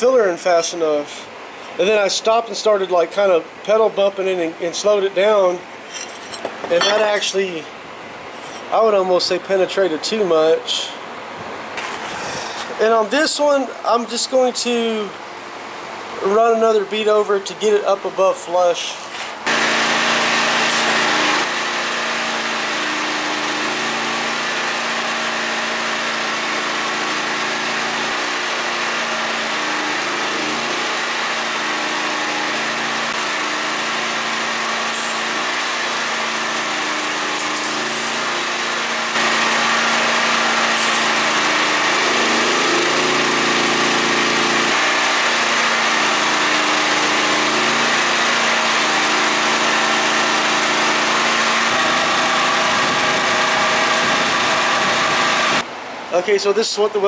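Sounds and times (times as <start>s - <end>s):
generator engine hum: 0.0s - 16.9s, 17.5s - 56.1s
welding arc crackling hiss: 30.2s - 38.5s, 39.1s - 55.6s.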